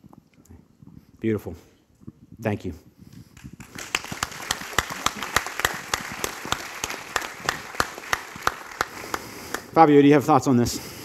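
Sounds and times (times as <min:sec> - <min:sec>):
sharp single claps: 0:03.4 - 0:09.7
audience applauding: 0:03.4 - 0:09.8.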